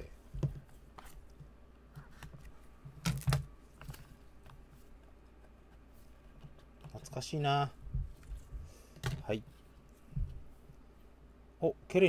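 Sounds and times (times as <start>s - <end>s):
low steady hum: 0.0s - 12.0s
knocks on cardboard: 10.1s - 10.4s.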